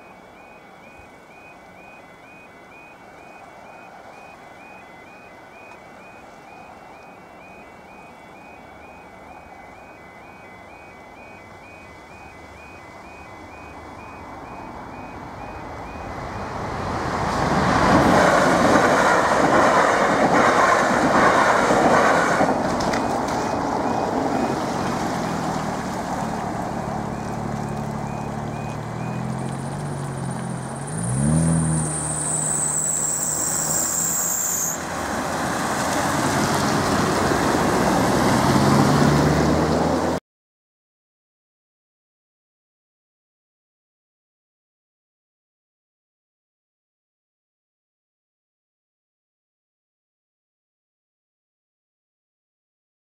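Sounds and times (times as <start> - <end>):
warbling crossing alarm: 0.0 - 16.8, 18.8 - 24.9, 26.2 - 34.9
electric train passing: 0.0 - 40.2
car engines revving: 14.0 - 40.2.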